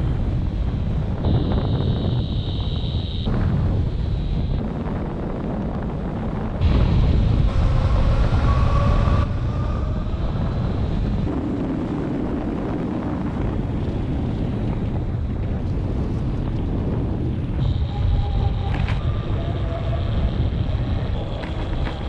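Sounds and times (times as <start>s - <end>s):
wind rushing over camera: 0.0s - 22.0s
electric motor whine: 17.6s - 22.0s.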